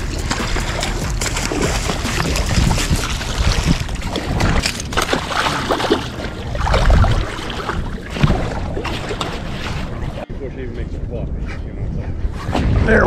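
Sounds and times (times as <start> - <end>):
shallow water splashing: 0.0 - 10.2.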